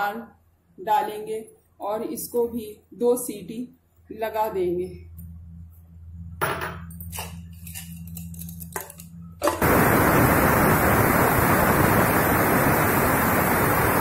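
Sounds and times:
pressure cooker steam hiss: 9.6s - 14.0s.

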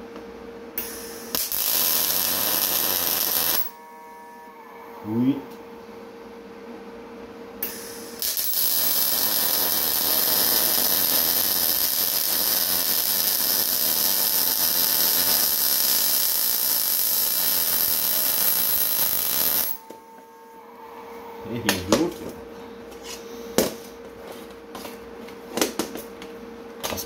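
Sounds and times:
welding arc sizzling hiss: 0.8s - 3.8s, 7.6s - 19.8s.

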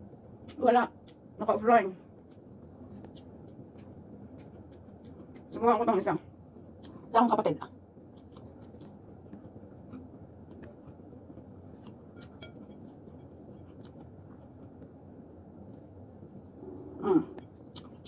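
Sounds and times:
low room hum: 0.0s - 18.0s
person chewing: 2.2s - 5.6s, 6.4s - 7.1s, 7.8s - 15.0s, 15.6s - 18.0s.

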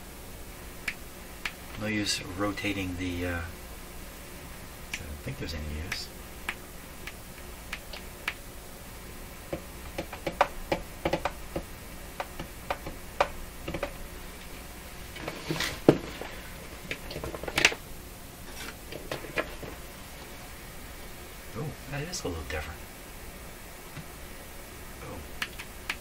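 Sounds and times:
faint low power-line hum: 0.0s - 26.0s
clicks and taps on radio chassis: 5.9s - 8.4s, 9.5s - 14.0s, 25.4s - 26.0s.

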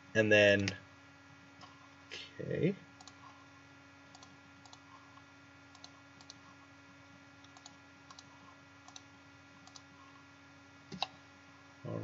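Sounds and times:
steady low hum: 0.0s - 12.0s
computer mouse clicks: 3.0s - 3.2s, 4.1s - 6.4s, 7.4s - 9.9s, 10.9s - 11.2s.

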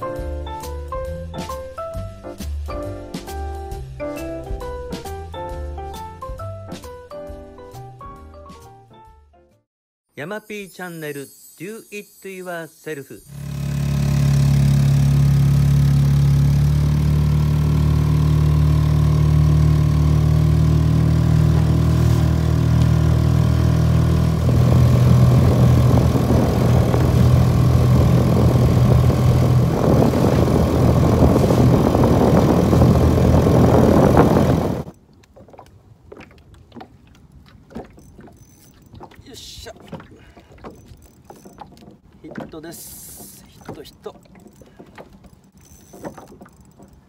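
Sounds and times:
water and hull noise: 13.2s - 47.0s
small outboard motor running: 13.3s - 35.0s, 37.7s - 47.0s
faint clicks and knocks: 39.8s - 47.0s.

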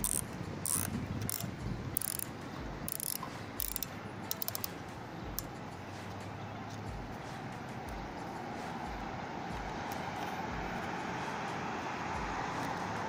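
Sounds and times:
cable tie ratcheting zips: 0.0s - 5.6s.

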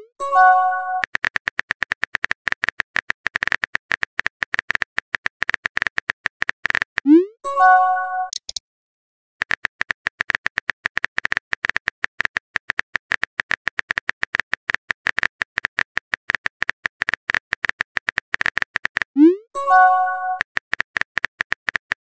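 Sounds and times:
phone keyboard key clicks: 8.3s - 8.6s.

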